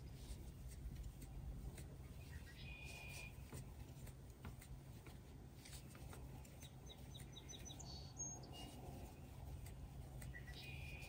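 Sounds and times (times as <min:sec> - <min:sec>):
faint high chirps: 0:10.2 - 0:11.0.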